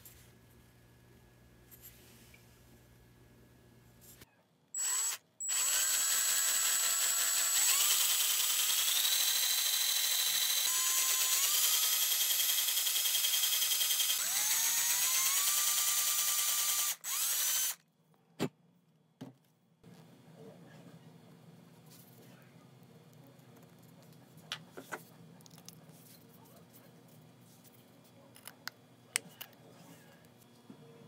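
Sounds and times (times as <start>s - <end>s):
power drill whining: 4.8s - 17.8s.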